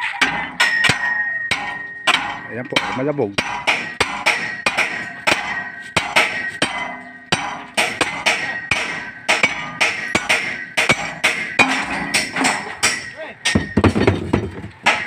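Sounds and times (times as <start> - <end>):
sledgehammer striking steel bar: 0.0 - 15.0.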